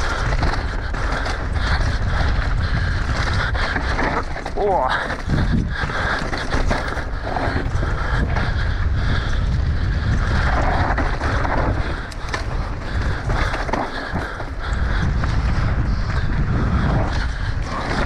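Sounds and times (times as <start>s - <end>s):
bike clicks and rattles: 0.0s - 18.0s
bike tyres rolling over dirt: 0.0s - 18.0s
wind rumbling on microphone: 0.0s - 18.0s.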